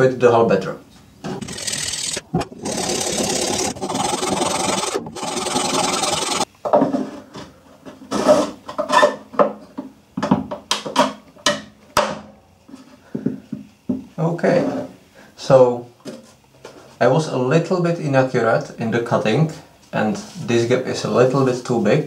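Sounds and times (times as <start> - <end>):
sanding plastic rasping scrape: 1.3 - 6.5
plastic knocks and scrapes: 2.2 - 2.7.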